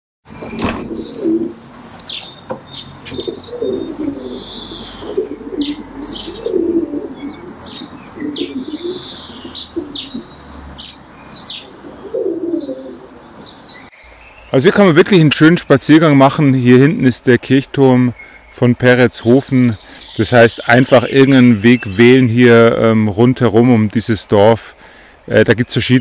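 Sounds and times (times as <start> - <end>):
pigeons cooing: 0.3 - 13.9
high bird chirps: 0.3 - 14.6.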